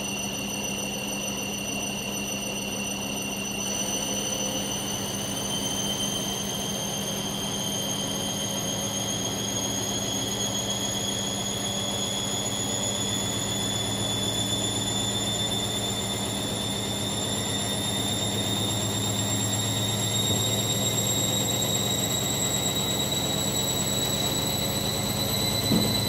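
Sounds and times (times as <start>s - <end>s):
washing machine spin cycle whine: 0.0s - 26.0s
steady low hum: 24.4s - 26.0s.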